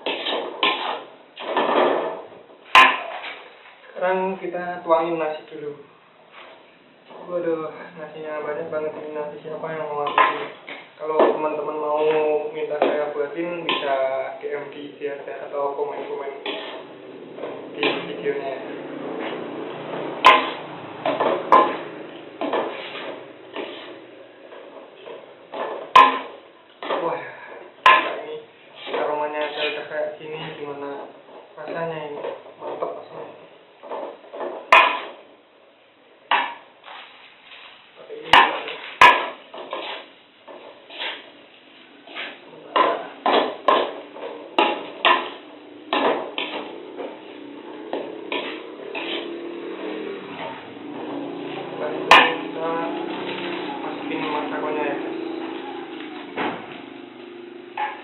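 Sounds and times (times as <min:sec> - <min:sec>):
metal spatula scraping a wok: 0:00.0 - 0:03.7, 0:11.6 - 0:14.2, 0:15.4 - 0:30.8, 0:36.3 - 0:56.3.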